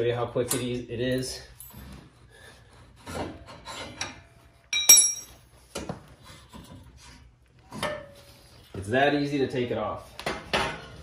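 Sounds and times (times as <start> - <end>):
loud ringing metal clank: 4.8 - 5.3.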